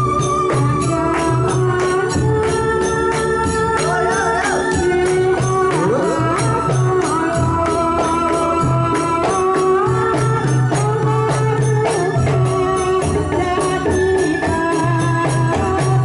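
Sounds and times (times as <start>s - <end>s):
electronic keyboard melody: 0.0s - 15.2s
hand drums beat: 0.0s - 16.0s
jingling tambourine percussion: 0.0s - 16.0s.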